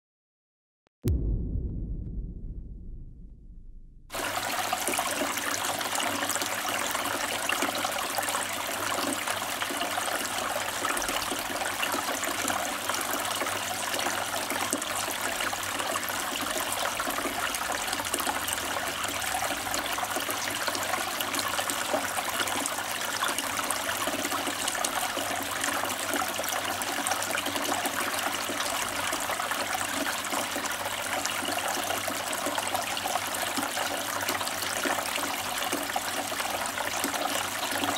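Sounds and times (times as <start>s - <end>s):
fountain water trickling: 4.1s - 37.9s.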